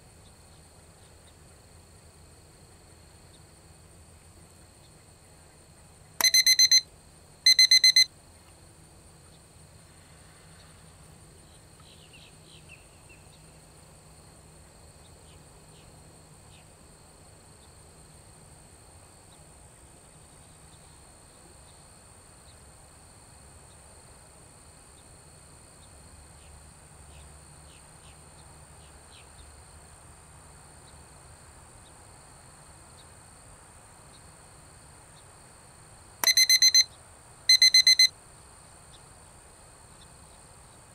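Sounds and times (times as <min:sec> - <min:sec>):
insects droning: 0:00.0 - 0:40.9
loud electronic beep: 0:06.2 - 0:06.8, 0:07.5 - 0:08.1, 0:36.2 - 0:36.9, 0:37.5 - 0:38.1.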